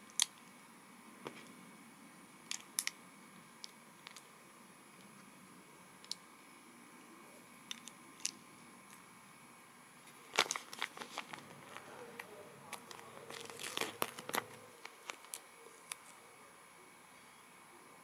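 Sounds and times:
plastic pieces clicking: 7.7 - 8.4
plastic bag crinkling and tearing: 10.2 - 12.0, 12.7 - 15.4.

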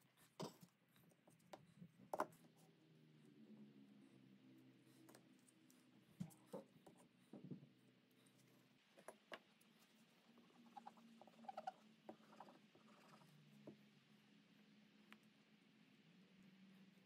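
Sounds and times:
faint steady hum: 0.0 - 17.0
faint clicks and taps of handling: 0.3 - 2.6, 5.0 - 10.1.

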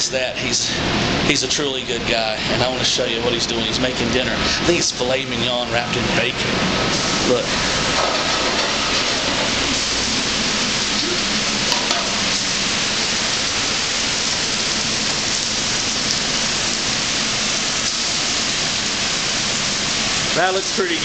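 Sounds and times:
food frying in a pan: 6.8 - 21.0
meat sizzling on a grill: 6.8 - 21.0.

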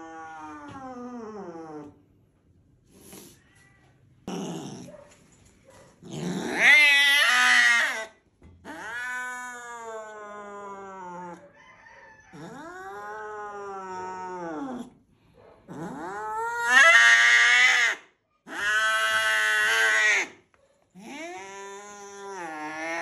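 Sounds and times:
cat yowling angrily: 6.1 - 11.6, 15.7 - 20.4, 21.0 - 23.0.

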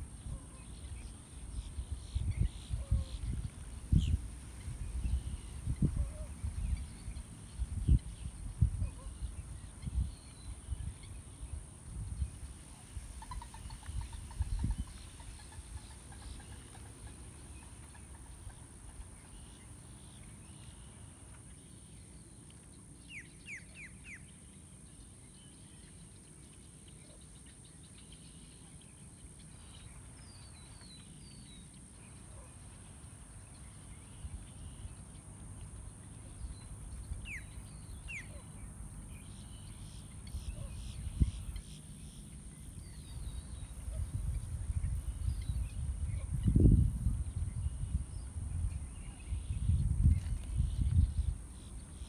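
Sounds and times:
faint bird chirps: 35.9 - 52.0.

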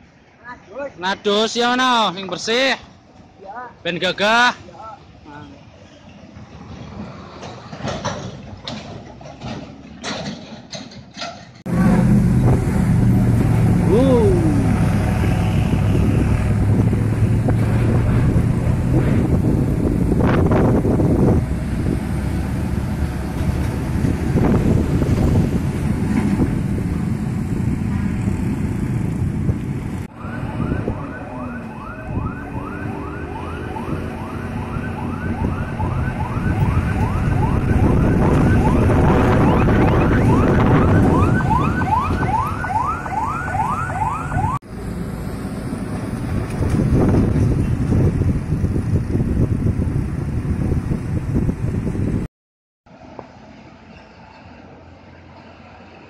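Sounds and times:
heavy diesel trucks passing: 0.0 - 52.3, 52.9 - 56.0
motorbikes passing: 11.7 - 52.2
siren chirping: 30.1 - 44.6.

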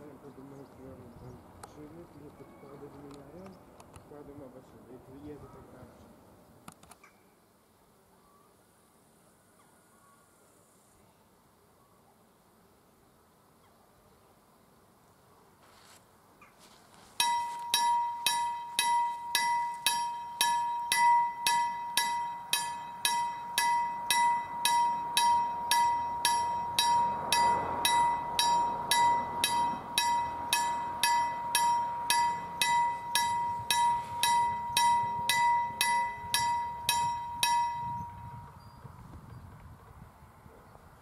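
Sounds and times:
level crossing warning bell: 17.2 - 38.6.

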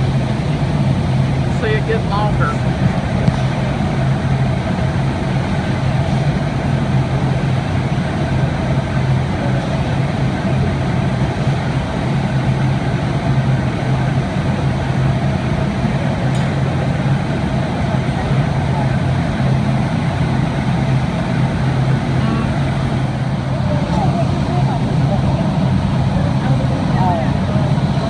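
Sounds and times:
low machinery hum: 0.0 - 28.0
rush of furnaces and blowers: 0.0 - 28.0.

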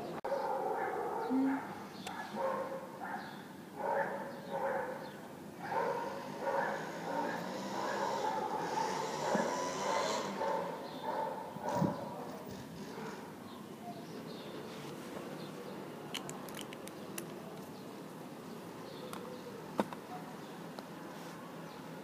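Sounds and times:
jewelry parts clicking: 16.1 - 17.4.

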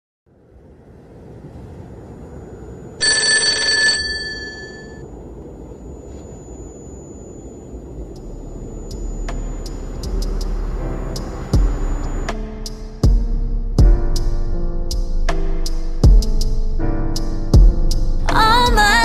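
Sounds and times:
telephone bell ringing: 3.0 - 5.0
low rumble: 4.6 - 19.0.

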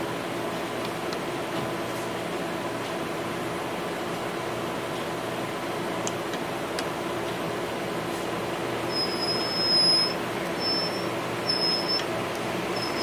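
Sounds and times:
high thin squeal: 8.9 - 12.1.

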